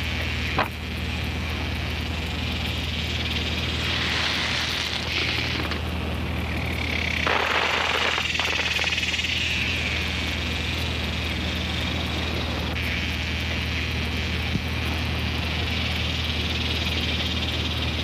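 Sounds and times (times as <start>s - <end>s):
insects chirring: 0.0s - 18.0s
low steady hum: 0.0s - 18.0s
broad rushing noise: 1.4s - 14.8s.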